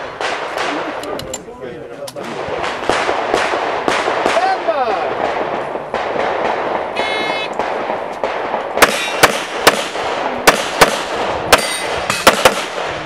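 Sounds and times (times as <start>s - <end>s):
handgun shots: 7.6s - 12.9s.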